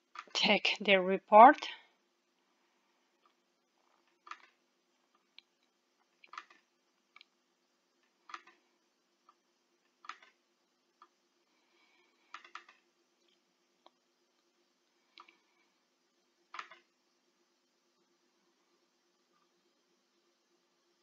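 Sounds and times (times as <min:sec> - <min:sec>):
faint steady hum: 0:00.0 - 0:21.0
computer mouse clicks: 0:04.2 - 0:04.6, 0:06.2 - 0:07.3, 0:08.3 - 0:08.6, 0:10.0 - 0:10.4, 0:12.3 - 0:12.8, 0:16.5 - 0:16.9.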